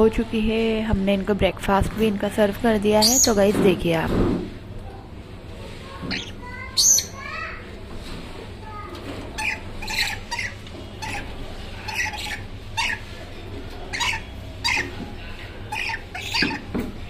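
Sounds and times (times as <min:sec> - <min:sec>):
parrots chirping and squawking: 0:03.0 - 0:03.4, 0:06.0 - 0:07.8, 0:08.9 - 0:16.9.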